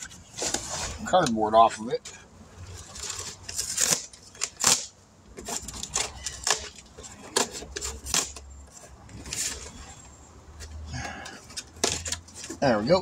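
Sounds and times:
cardboard tearing and rustling: 2.7s - 9.9s.

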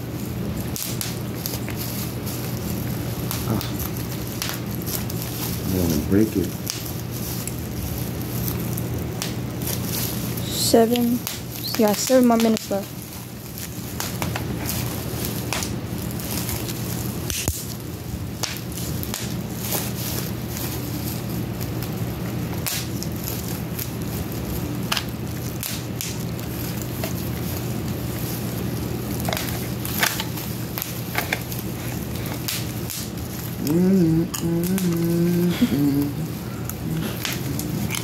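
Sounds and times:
steady low hum: 0.0s - 38.0s
drawn-out voice-like hum: 3.4s - 3.9s, 33.5s - 38.0s.

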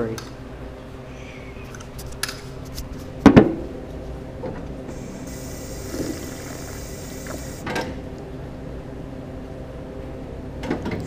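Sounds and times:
steady low hum: 0.0s - 11.0s
drinking fountain water hissing: 4.9s - 7.6s.

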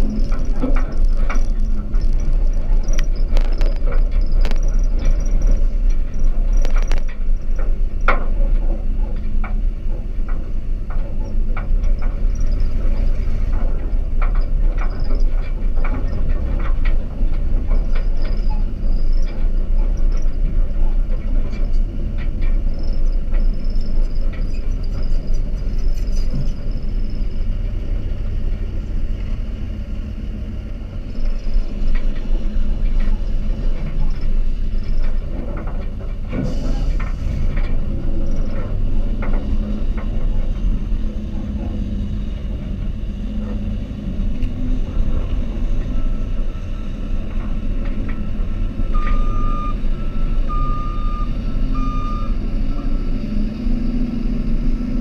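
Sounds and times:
clunks and rattles from truck body: 0.0s - 27.8s, 31.2s - 41.9s
truck engine driving: 0.0s - 55.0s.

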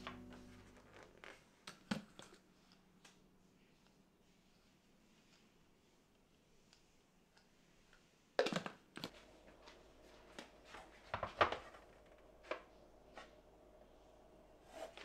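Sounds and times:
faint steady hum: 0.0s - 1.5s, 9.0s - 15.0s.

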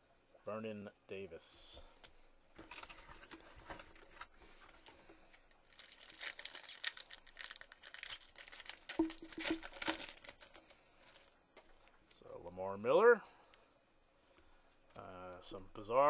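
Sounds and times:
foil wrapper tearing and crinkling: 2.6s - 11.4s.

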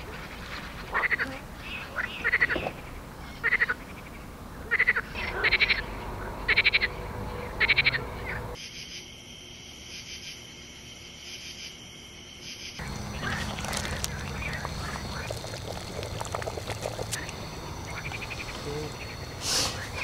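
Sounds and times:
frogs croaking: 0.0s - 20.0s
high-pitched insect chorus: 7.6s - 20.0s.

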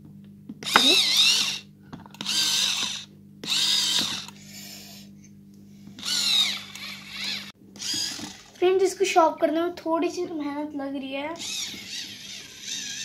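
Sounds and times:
steady low hum: 0.0s - 13.0s
electric pencil sharpener grinding: 0.6s - 5.0s, 5.9s - 8.6s, 11.4s - 13.0s.

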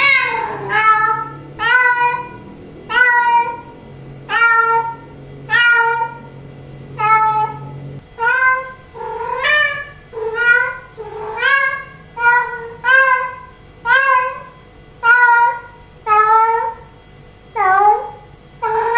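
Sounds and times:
cat meowing: 0.0s - 6.3s, 7.0s - 16.9s, 17.6s - 18.9s.

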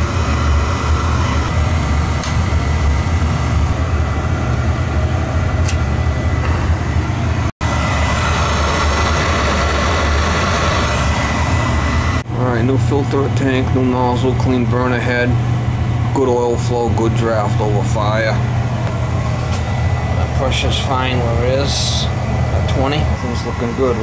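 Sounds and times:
oil burner rumbling hum: 0.0s - 24.0s.

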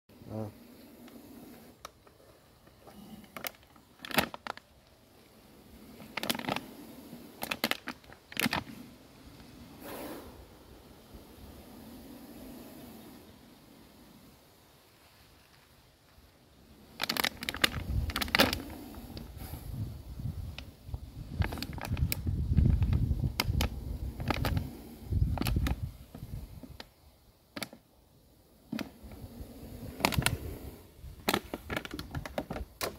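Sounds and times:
plastic jar clicks and crackles: 3.2s - 5.0s, 6.0s - 6.6s, 7.4s - 8.7s, 17.0s - 19.3s, 21.4s - 24.6s, 27.5s - 27.8s, 28.7s - 29.0s, 31.2s - 32.9s.

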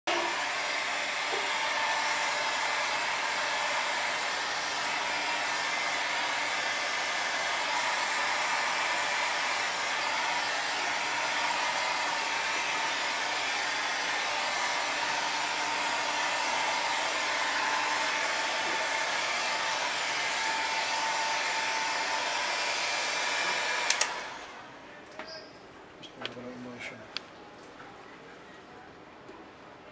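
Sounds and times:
hair dryer running: 0.1s - 24.8s.

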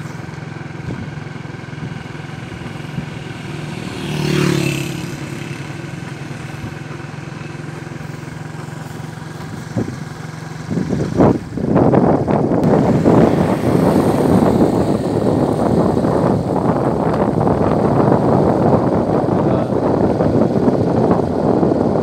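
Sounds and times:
loud rough rushing noise: 0.0s - 22.0s
motorcycle engine running: 0.0s - 22.0s.

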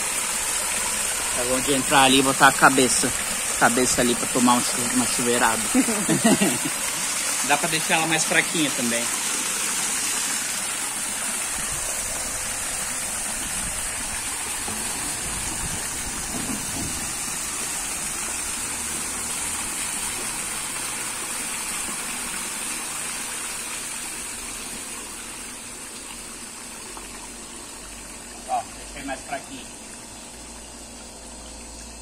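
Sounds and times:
water cascading into pool: 0.0s - 32.0s.

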